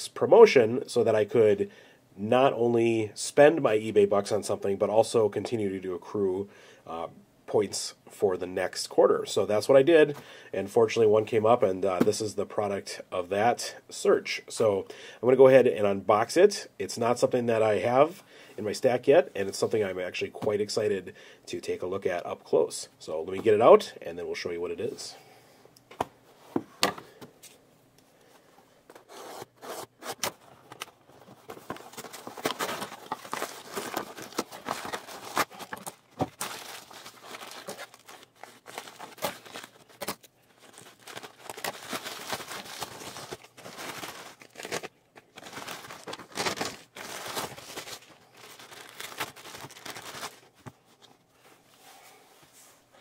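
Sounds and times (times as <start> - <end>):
cardboard and plastic packaging tearing: 29.0 - 50.5.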